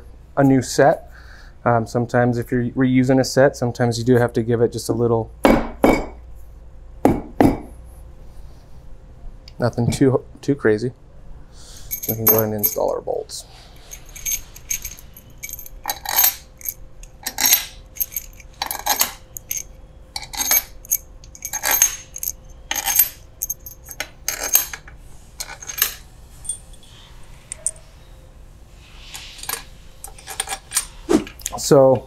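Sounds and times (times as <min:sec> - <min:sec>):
metal bolts clinking: 0:11.9 - 0:13.1, 0:13.7 - 0:26.8, 0:29.4 - 0:30.9.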